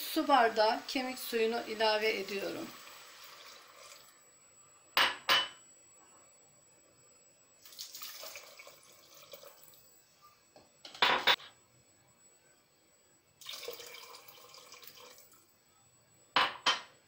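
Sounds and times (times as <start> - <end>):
liquid pouring into pot: 2.7 - 4.2, 7.6 - 9.9, 13.4 - 15.4.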